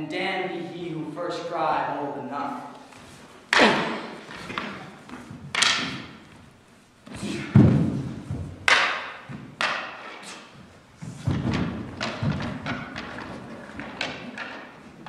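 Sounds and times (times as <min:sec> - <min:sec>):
prop swords clashing: 0:03.5 - 0:15.0.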